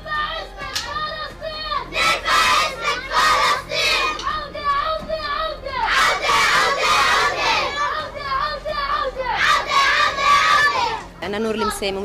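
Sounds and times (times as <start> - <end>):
children chanting in unison: 0.0 - 11.1
group shouting back: 5.6 - 11.0.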